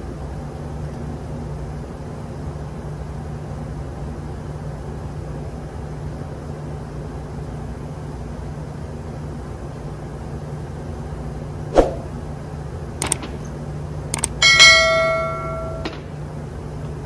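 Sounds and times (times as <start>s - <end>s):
engine-room machinery drone: 0.0s - 17.0s
light metal clicks: 13.0s - 13.5s, 14.1s - 14.4s
steel part clanking and ringing: 14.3s - 16.2s.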